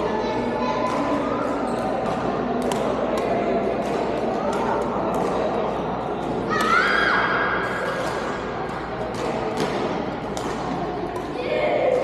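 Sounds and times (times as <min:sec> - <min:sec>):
sports hall murmur: 0:00.0 - 0:12.0
racket striking shuttlecock: 0:09.1 - 0:11.4.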